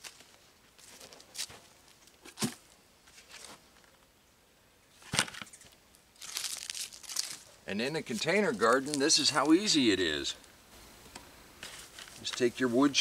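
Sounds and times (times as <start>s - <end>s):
dry rustling: 5.0s - 10.6s, 11.6s - 13.0s.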